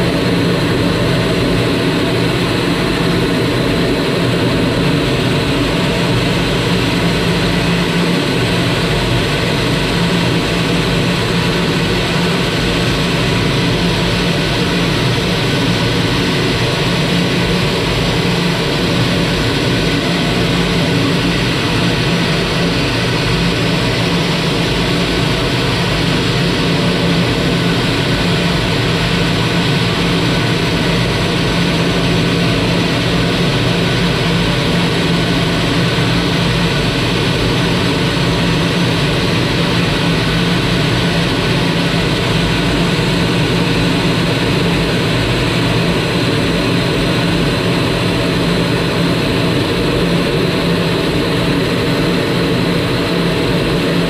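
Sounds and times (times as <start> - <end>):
jet engine roar in flight: 0.0 - 54.0.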